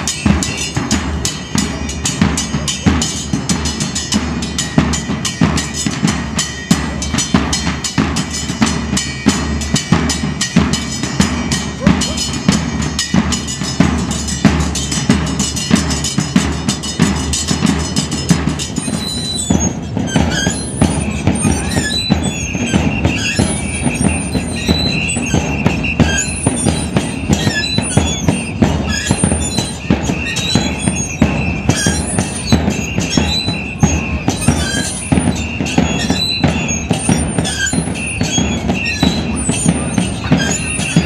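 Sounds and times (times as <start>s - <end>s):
bass drums and cymbals beating: 0.0s - 41.0s
short high squeaks: 18.0s - 41.0s.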